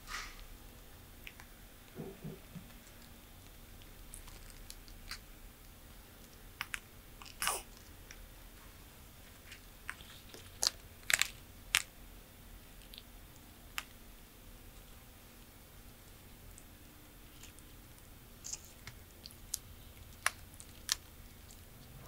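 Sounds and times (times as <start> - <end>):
tortoise crunching food: 1.2 - 8.3, 9.3 - 12.0, 14.7 - 22.0.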